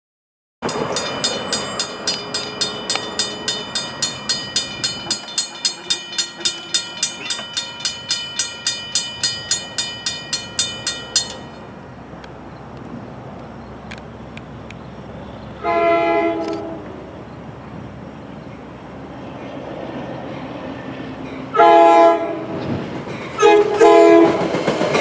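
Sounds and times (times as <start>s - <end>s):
crossing bell ringing rapidly: 0.6s - 11.8s.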